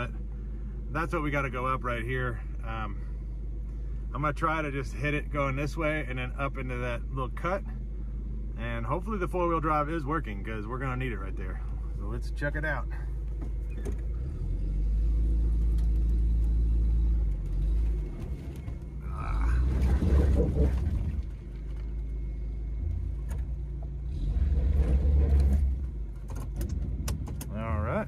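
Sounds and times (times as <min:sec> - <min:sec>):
car engine revving: 0:12.8 - 0:28.0.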